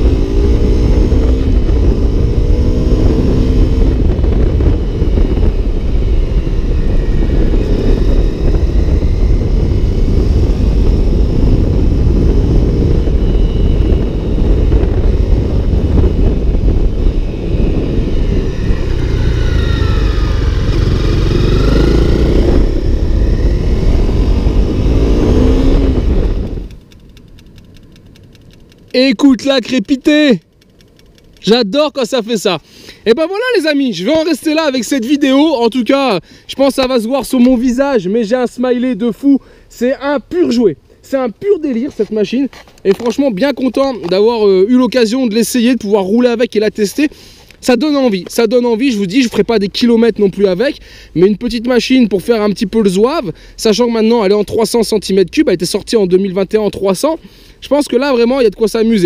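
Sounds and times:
motorcycle engine revving: 0:00.0 - 0:28.7
wind noise: 0:00.0 - 0:59.0.

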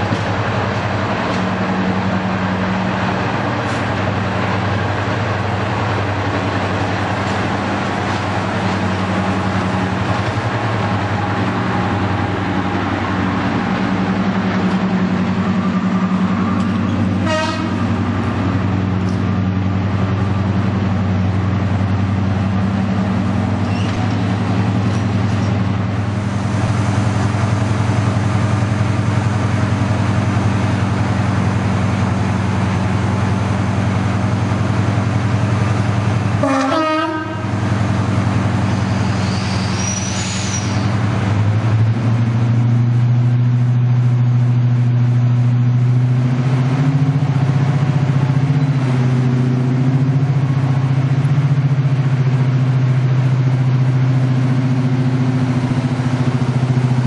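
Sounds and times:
diesel locomotive engines running: 0:00.0 - 0:57.0
locomotive horn blast: 0:16.6 - 0:18.2, 0:36.4 - 0:37.6.

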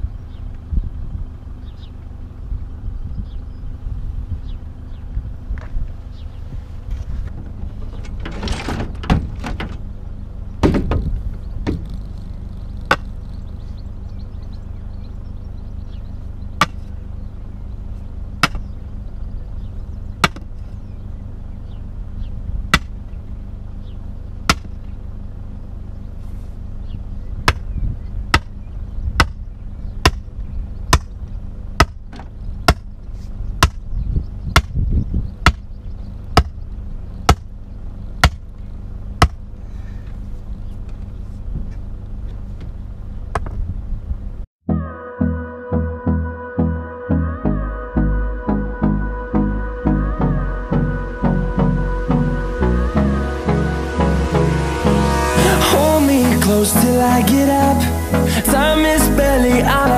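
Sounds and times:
sledgehammer striking wooden post: 0:10.6 - 0:11.9, 0:12.9 - 0:13.1, 0:16.6 - 0:16.9, 0:18.4 - 0:18.7, 0:20.2 - 0:20.5, 0:22.7 - 0:23.0, 0:24.5 - 0:24.8, 0:28.3 - 0:28.6, 0:29.2 - 0:29.4, 0:30.0 - 0:30.3, 0:30.9 - 0:31.2, 0:31.8 - 0:32.9, 0:33.6 - 0:33.8, 0:34.6 - 0:34.8, 0:35.4 - 0:35.7, 0:36.4 - 0:36.6, 0:37.3 - 0:37.5, 0:38.2 - 0:38.5, 0:39.2 - 0:39.5.

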